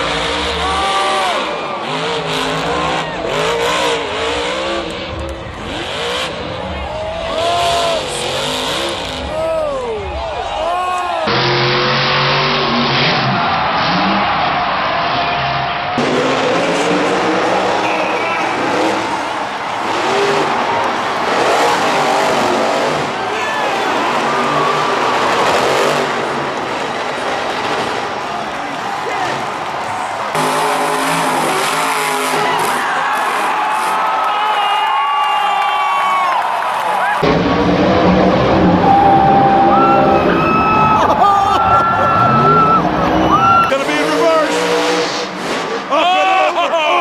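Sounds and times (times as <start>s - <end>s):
truck engine revving: 0.0s - 10.2s, 11.2s - 34.1s, 37.2s - 46.0s
crowd noise: 0.0s - 47.0s.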